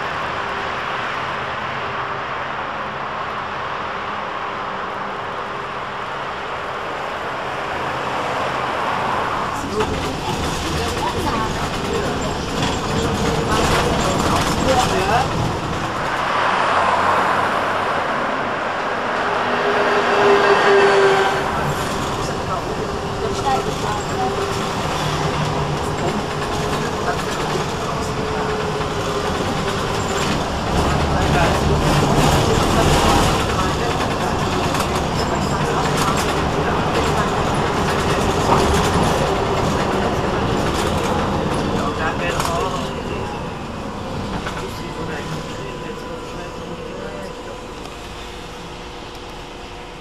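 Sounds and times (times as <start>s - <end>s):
bus steady tone: 0.0s - 50.0s
tyre and road noise: 0.0s - 50.0s.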